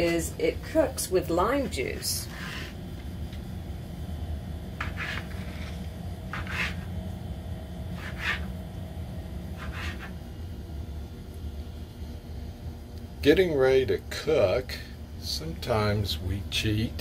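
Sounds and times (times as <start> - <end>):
steady low hum: 0.0 - 17.0
knife slicing on wooden board: 4.8 - 5.6, 6.3 - 6.9, 8.0 - 8.5, 9.6 - 10.2.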